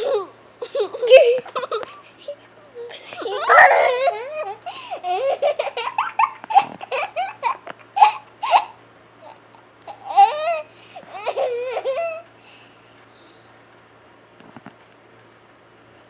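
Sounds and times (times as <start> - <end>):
little girl laughing: 0.0 - 12.3.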